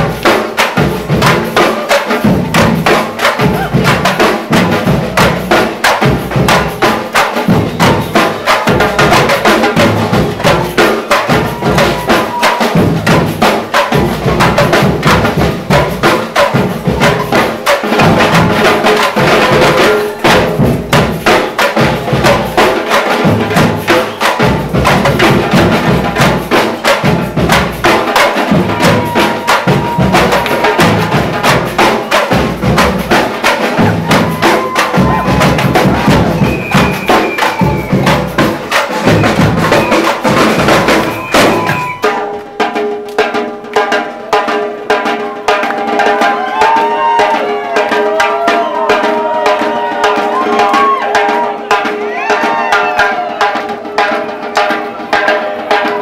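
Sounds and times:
loud dance music: 0:00.0 - 0:42.5
fast percussion: 0:00.0 - 0:56.0.

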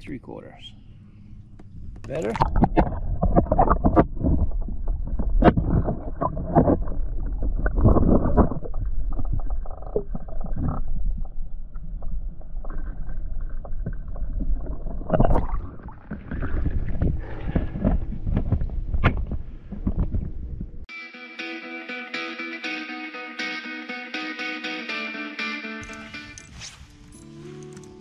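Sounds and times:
water sloshing against hull: 0:00.9 - 0:20.7
water splashes: 0:02.0 - 0:18.4.

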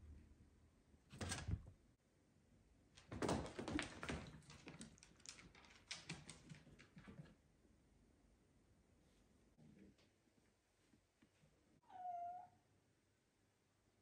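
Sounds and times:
claws clicking on wooden floor: 0:03.0 - 0:07.3.

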